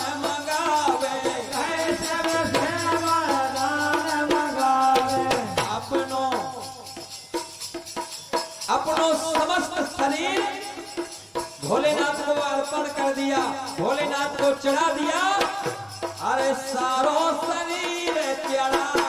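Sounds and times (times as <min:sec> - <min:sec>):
jingling percussion: 0:00.0 - 0:19.0
drum strokes: 0:01.0 - 0:06.7.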